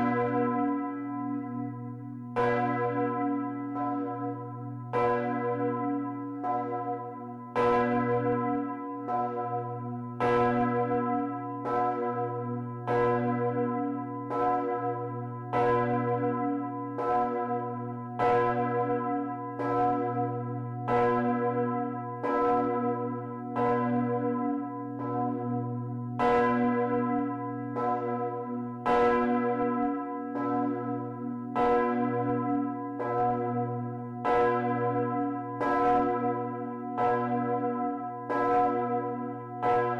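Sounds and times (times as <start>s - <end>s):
church bell ringing: 0.0s - 39.9s.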